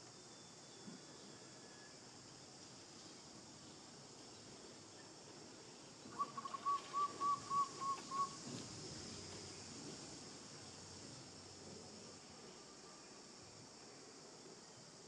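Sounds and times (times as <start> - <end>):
high insect hiss: 0.0 - 15.0
bird whistled notes: 6.1 - 8.4.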